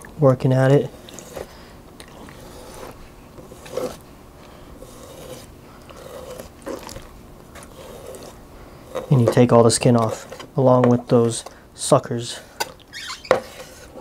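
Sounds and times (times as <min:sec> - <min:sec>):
knife scraping octopus on cutting board: 0:00.8 - 0:01.6, 0:02.2 - 0:04.0, 0:04.8 - 0:07.0, 0:07.6 - 0:10.5, 0:12.6 - 0:14.0.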